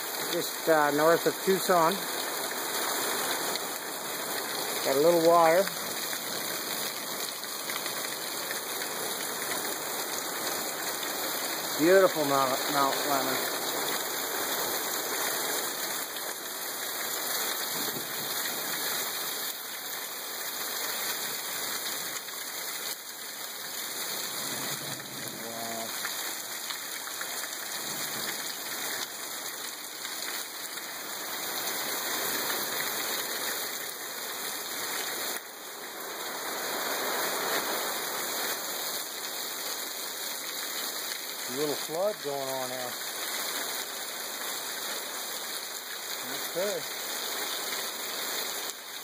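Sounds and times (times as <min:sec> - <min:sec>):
heavy rain on trees and deck: 0:00.0 - 0:49.0.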